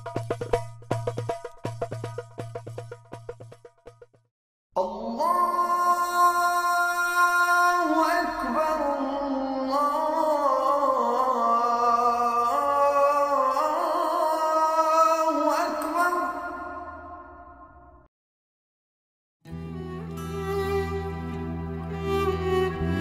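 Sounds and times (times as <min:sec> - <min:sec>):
music of long held chords: 0:19.5 - 0:23.0.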